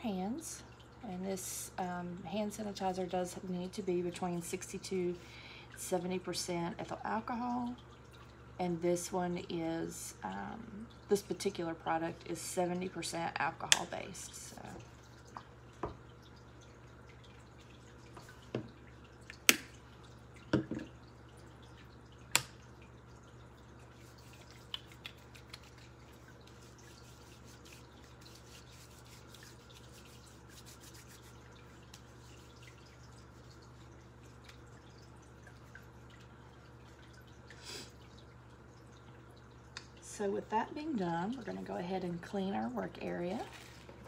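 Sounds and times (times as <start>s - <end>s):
low steady hum: 0.0s - 44.0s
sanitizer pump clicks: 13.6s - 14.0s.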